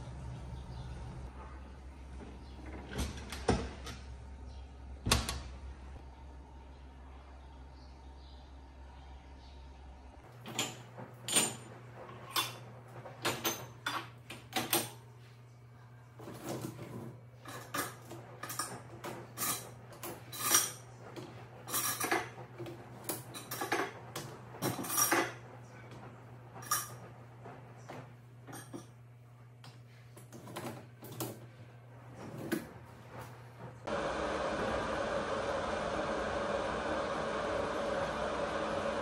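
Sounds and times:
cutlery and dishes clinking: 10.4 - 15.0, 16.3 - 20.9, 21.6 - 22.4, 23.1 - 25.4, 26.6 - 27.0, 28.5 - 29.0.

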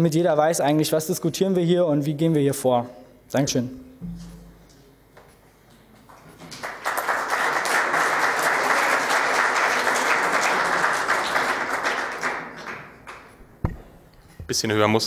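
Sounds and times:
audience applauding: 6.0 - 13.4.

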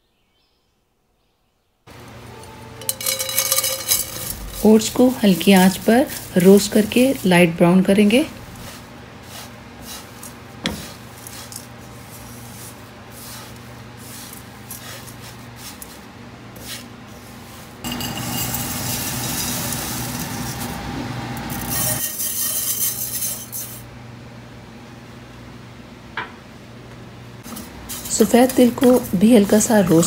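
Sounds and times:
low hum: 1.9 - 9.2
spatula scraping a pan: 2.4 - 20.7, 21.6 - 23.8.

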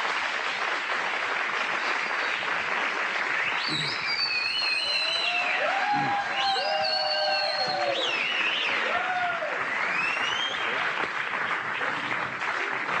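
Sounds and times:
studio audience applauding: 0.0 - 13.0
rising whistle: 3.5 - 8.8.

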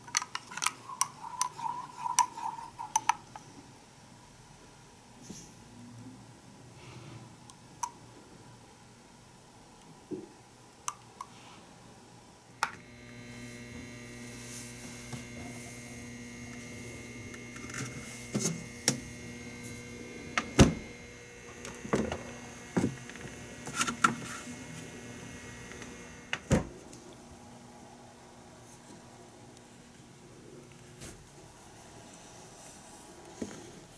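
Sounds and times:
refrigerator humming: 12.6 - 27.0.

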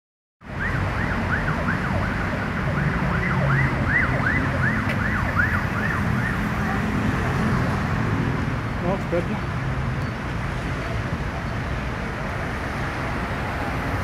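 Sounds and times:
city traffic rumble: 0.4 - 14.0
emergency siren yelping: 0.5 - 6.9.

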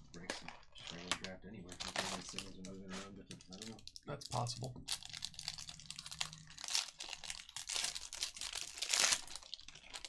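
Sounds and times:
foil wrapper tearing and crinkling: 1.7 - 2.6, 4.4 - 10.0.

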